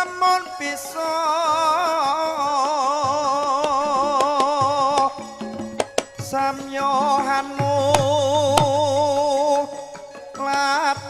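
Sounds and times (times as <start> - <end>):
gamelan percussive strikes: 3.8 - 10.9.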